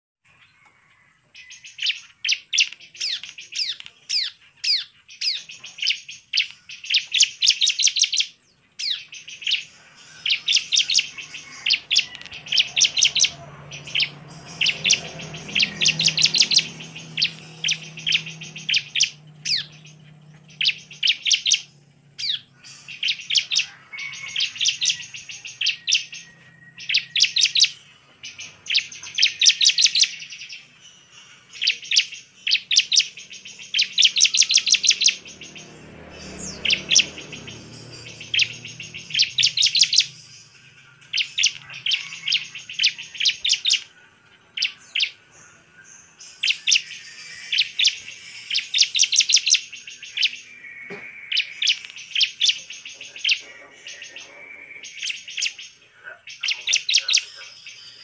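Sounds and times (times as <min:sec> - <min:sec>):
bird chirping rapidly: 0:01.4 - 0:58.0.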